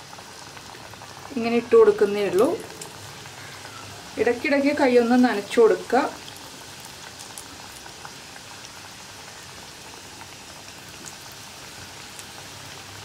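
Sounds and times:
hot oil sizzling: 0.0s - 13.0s
small crackles: 6.2s - 12.5s.

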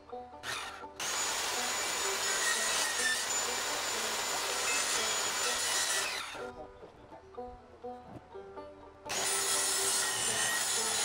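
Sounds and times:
power saw cutting board: 0.4s - 6.5s, 9.1s - 11.0s.

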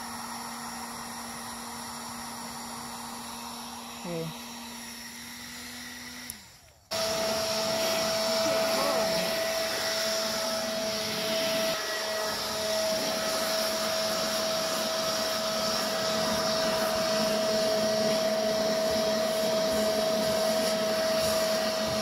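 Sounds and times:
electric leaf blower running: 0.0s - 22.0s.

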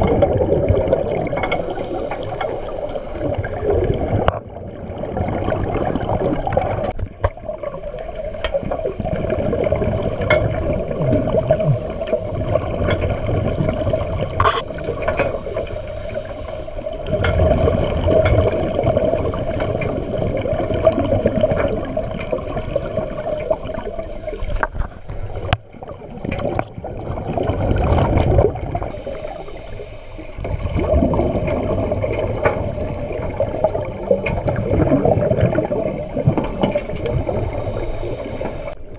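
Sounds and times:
regulator bubbles: 0.0s - 38.9s
surging water underwater: 0.0s - 38.9s
steady hum: 0.7s - 4.4s, 7.9s - 20.2s, 23.1s - 25.8s, 28.8s - 33.5s, 34.9s - 38.9s.

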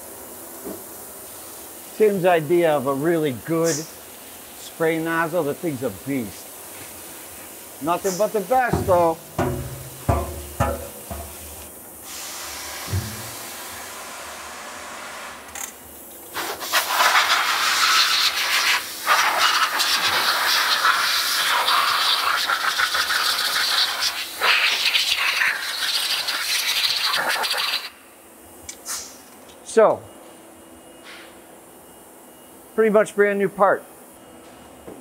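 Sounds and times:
spray nozzle spraying water: 7.9s - 13.8s.

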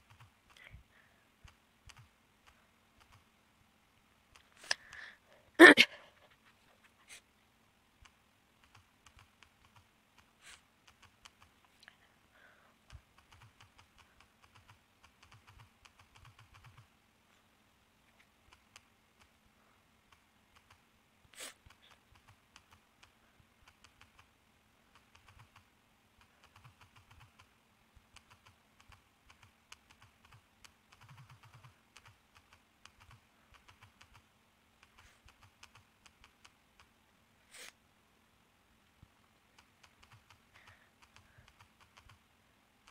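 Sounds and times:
typing on phone touchscreen: 0.0s - 0.7s, 1.4s - 3.2s, 8.0s - 11.6s, 12.9s - 16.9s, 20.1s - 20.8s, 21.6s - 24.3s, 24.9s - 27.5s, 28.1s - 36.9s, 39.6s - 42.2s.

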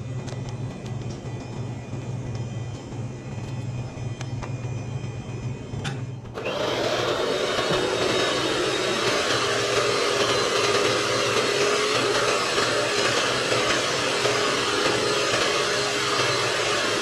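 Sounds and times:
electric hand mixer whisking batter: 6.3s - 17.0s.

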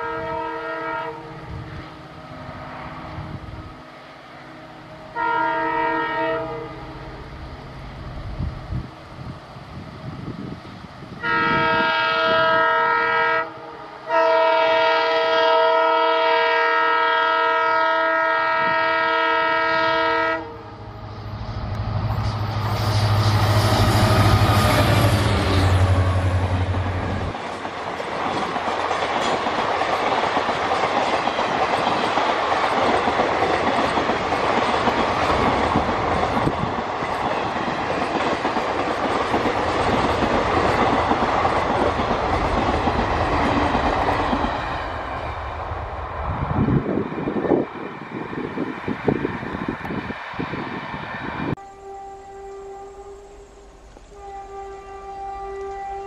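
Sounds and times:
locomotive horn: 0.0s - 7.3s, 11.2s - 21.0s, 22.7s - 27.4s, 51.5s - 56.0s
deep locomotive engine rumble: 0.0s - 16.5s, 17.1s - 56.0s.

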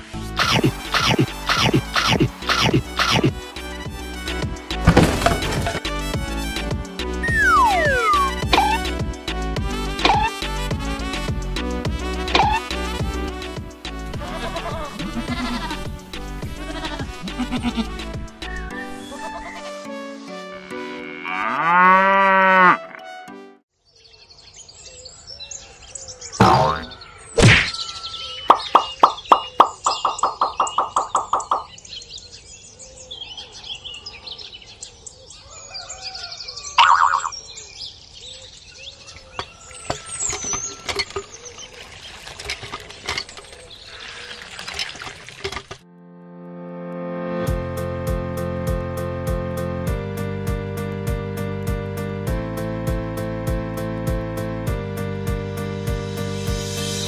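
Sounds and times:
light background music: 0.0s - 23.6s
high chirps: 7.2s - 8.9s, 27.7s - 31.8s, 36.8s - 37.4s
cow mooing: 20.6s - 23.0s
water gushing from hand pump: 40.1s - 45.8s
water splashing into pond: 40.6s - 45.8s.

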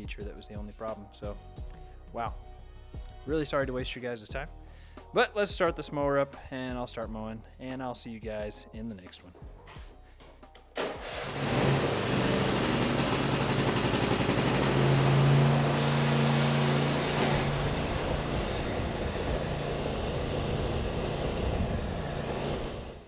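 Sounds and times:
riding lawn mower engine: 10.8s - 23.0s.

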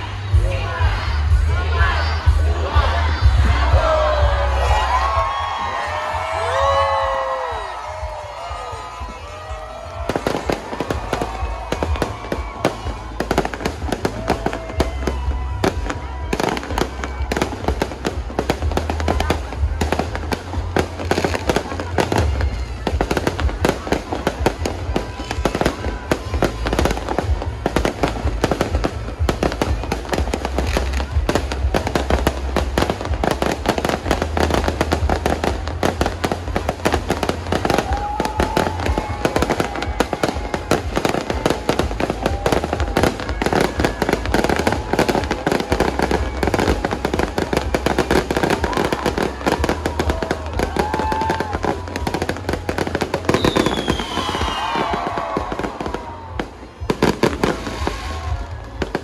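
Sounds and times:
bass-heavy music: 0.0s - 59.0s
fireworks bursting: 4.6s - 59.0s
falling firework whistle: 53.3s - 55.4s.

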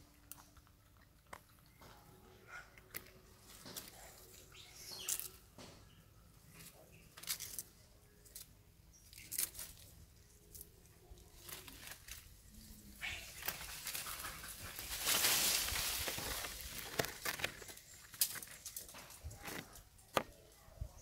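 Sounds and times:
leaves rustling and snapping: 2.8s - 5.4s, 6.6s - 20.6s
brush rustling: 6.5s - 20.4s
sharp crackles: 13.0s - 19.8s.

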